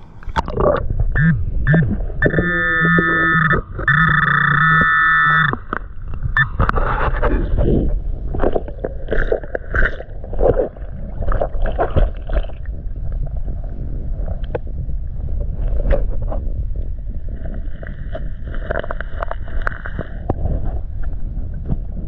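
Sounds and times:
muffled underwater scraping: 0:00.0 - 0:22.0
electronic tone: 0:00.4 - 0:07.0.

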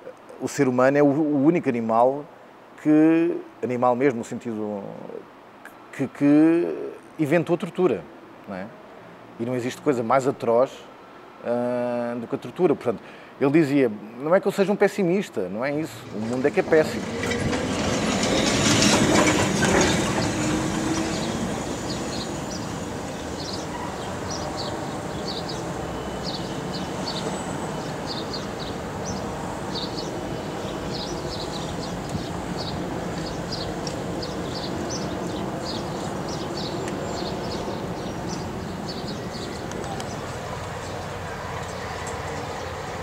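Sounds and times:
street traffic: 0:08.1 - 0:13.4, 0:15.4 - 0:43.0
tram running past: 0:16.0 - 0:43.0.

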